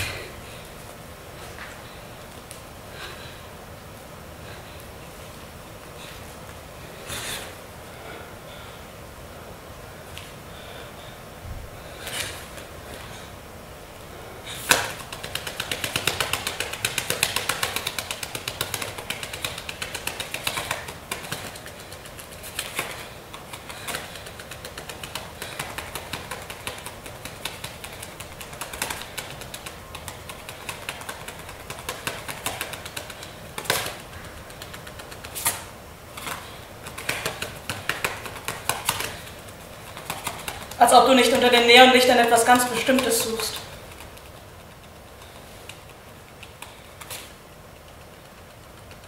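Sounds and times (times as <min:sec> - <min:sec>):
rapid dry clicking and crackling: 0:14.7 - 0:35.6, 0:36.2 - 0:41.4, 0:42.2 - 0:49.0.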